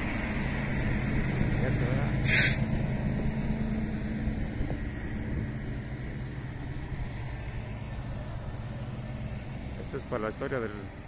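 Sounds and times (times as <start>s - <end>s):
truck diesel engine running: 0.0s - 11.0s
loud air hiss: 2.2s - 2.6s.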